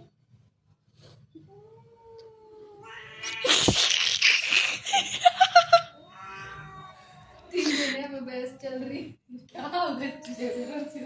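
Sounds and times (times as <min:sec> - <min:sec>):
cats yowling: 0:01.7 - 0:03.7, 0:05.9 - 0:07.6.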